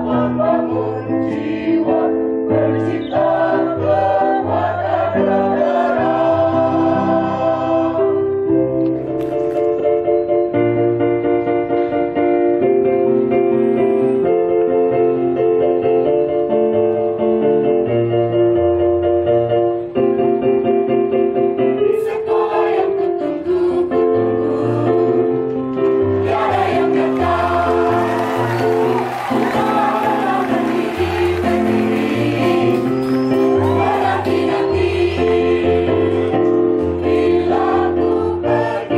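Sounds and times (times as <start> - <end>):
mixed choir singing in parts: 0.0 - 8.2, 21.9 - 25.3, 26.0 - 38.9.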